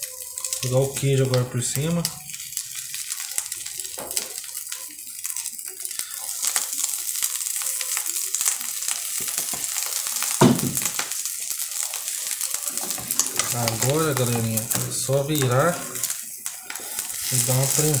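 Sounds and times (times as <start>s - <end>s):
egg sizzling in a frying pan: 0.0s - 18.0s
loud knock: 10.4s - 10.8s.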